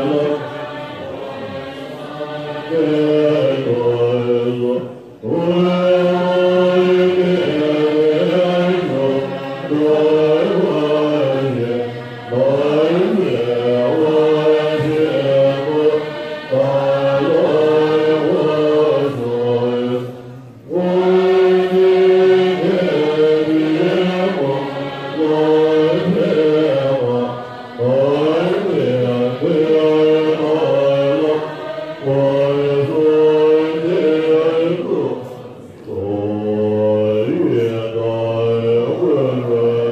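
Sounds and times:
monks chanting in unison: 0.0 - 39.9.

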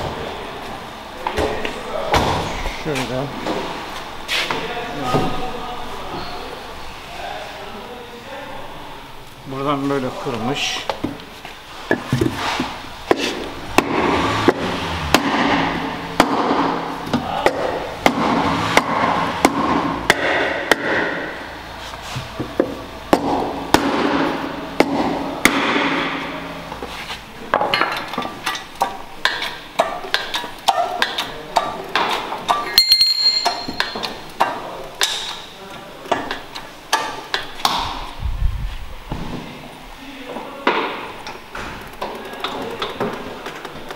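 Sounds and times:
hammer striking sheet metal: 13.8 - 16.9
short metallic ring: 32.7 - 34.0.

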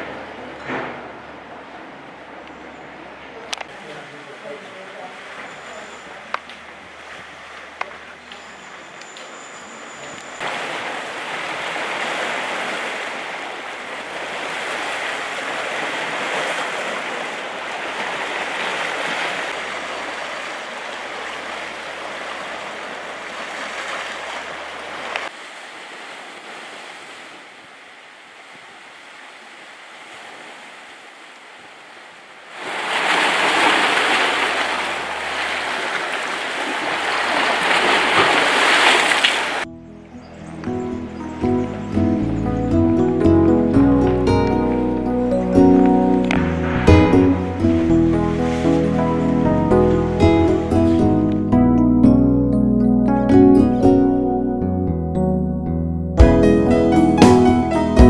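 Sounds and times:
waves washing against rocks: 10.4 - 27.6, 28.7 - 39.7.

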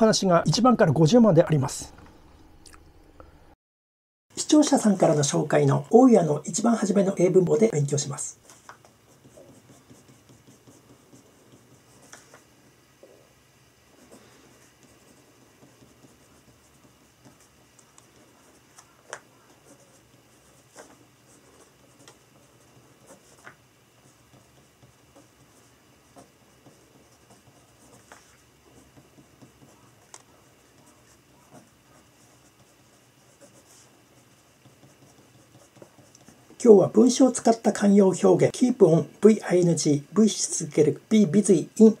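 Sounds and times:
pen scratching on paper: 7.6 - 12.5, 13.9 - 37.4.

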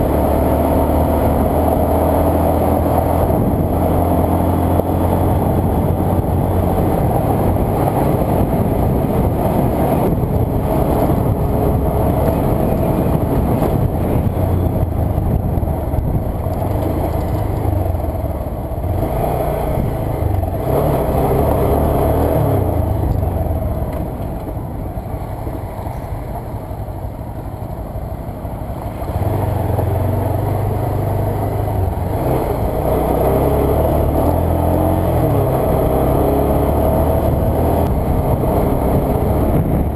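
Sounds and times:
motorcycle engine running: 0.0 - 25.3, 28.0 - 39.9.

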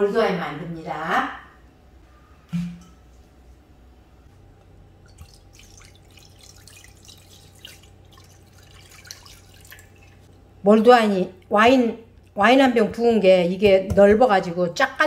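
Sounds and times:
wine pouring into a pot: 5.0 - 10.3.

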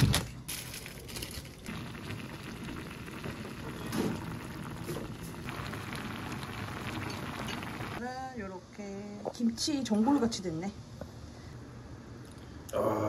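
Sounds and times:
broth boiling and bubbling: 0.9 - 8.0.

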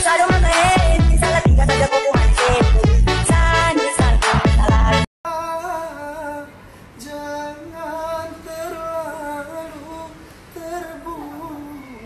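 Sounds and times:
pop dance music: 0.0 - 5.1
man singing unaccompanied: 0.0 - 12.0.

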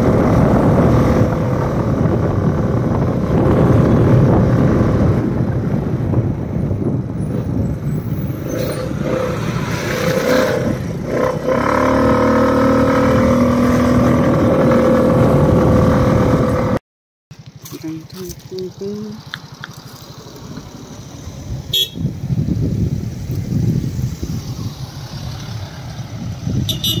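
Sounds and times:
vehicle engine drone: 0.0 - 16.8
wind rushing over microphone: 0.0 - 16.8, 20.2 - 27.0.

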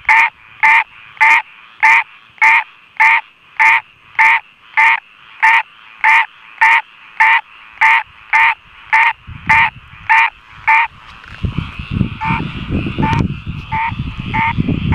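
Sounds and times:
treefrog nasal calls: 0.0 - 11.0, 11.6 - 14.9
microphone handling rumble: 9.2 - 14.9.

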